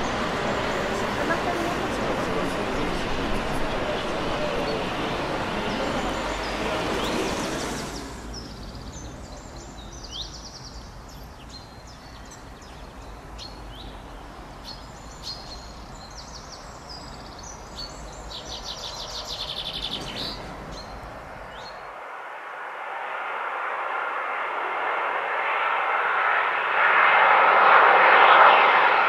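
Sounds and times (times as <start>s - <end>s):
songbirds chirping: 0.0s - 22.1s
low rushing background: 0.0s - 29.0s.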